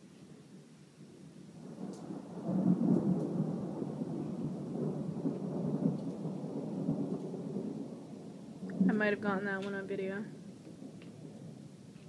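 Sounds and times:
thunder rolling: 0:01.6 - 0:11.7.

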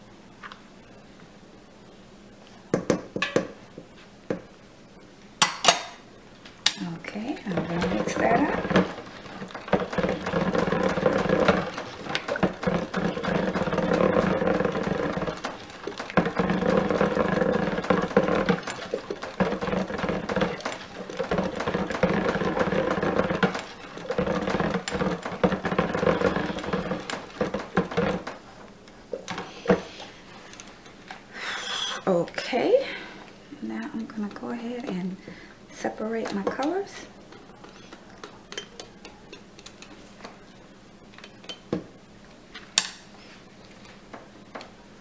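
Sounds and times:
stick blender motor running: 0:07.2 - 0:28.5.

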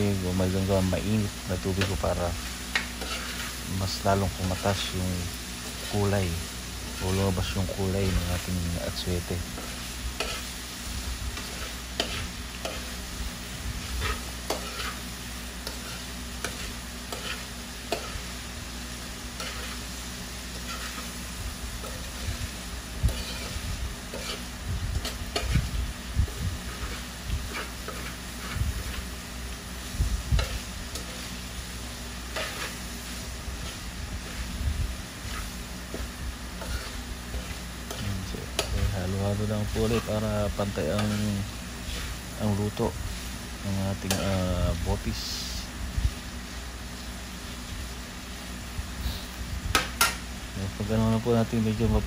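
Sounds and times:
meat sizzling in a pan: 0:00.0 - 0:52.0
spoon clinking and scraping pan: 0:02.7 - 0:03.6, 0:09.5 - 0:10.5, 0:11.4 - 0:13.0, 0:14.0 - 0:15.0, 0:15.6 - 0:18.3, 0:19.4 - 0:19.8, 0:20.5 - 0:21.1, 0:23.1 - 0:25.7, 0:26.6 - 0:29.0, 0:35.3 - 0:38.9, 0:39.7 - 0:42.1.

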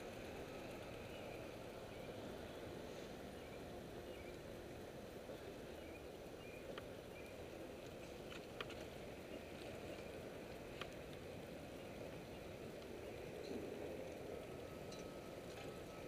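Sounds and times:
bicycle rolling on pavement: 0:00.0 - 0:16.0
bicycle clicks and rattles: 0:07.9 - 0:11.4.

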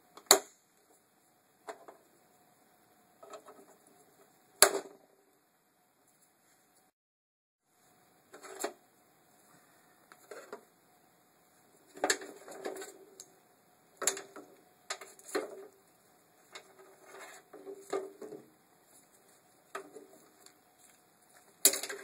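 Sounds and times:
plastic parts clicking and rattling: 0:14.0 - 0:15.7, 0:21.6 - 0:22.0.

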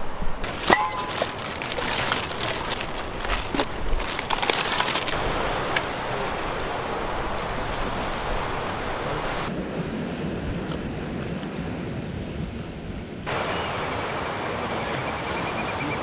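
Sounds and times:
ocean surf: 0:04.9 - 0:10.3, 0:13.3 - 0:16.0.

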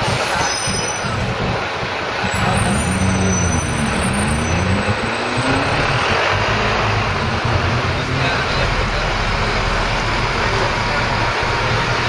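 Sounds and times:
street traffic noise: 0:00.0 - 0:12.0
tram equipment humming: 0:00.0 - 0:12.0.

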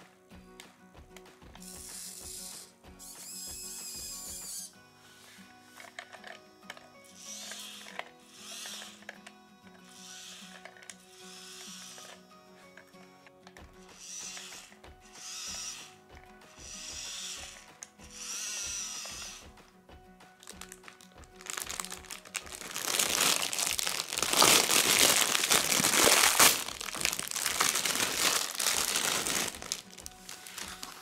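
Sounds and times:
plastic bag crinkling: 0:20.4 - 0:31.0.

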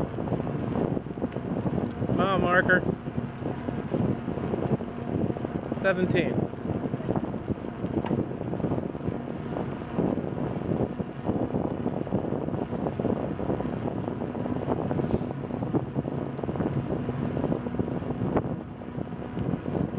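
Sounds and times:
bicycle tyres rolling on asphalt: 0:00.0 - 0:19.9
wind buffeting microphone: 0:00.0 - 0:19.9
bicycle knocks and rattles: 0:07.8 - 0:08.3.

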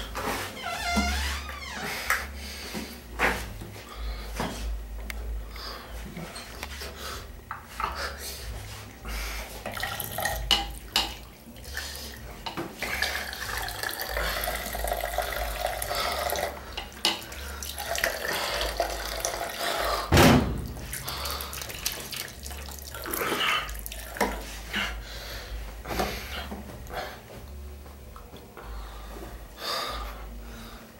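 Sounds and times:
water running from a tap: 0:09.6 - 0:11.3, 0:12.8 - 0:19.6, 0:21.0 - 0:24.4
loud thump: 0:20.1 - 0:20.8.

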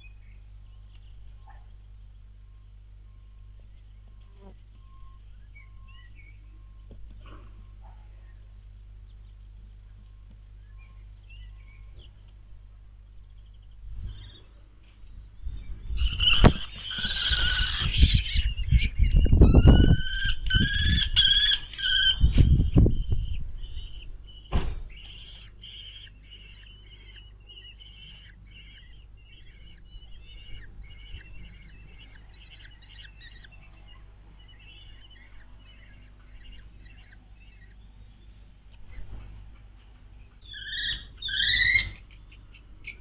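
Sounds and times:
bird chicks calling shrilly: 0:02.6 - 0:06.9, 0:13.2 - 0:39.2, 0:40.2 - 0:43.0.

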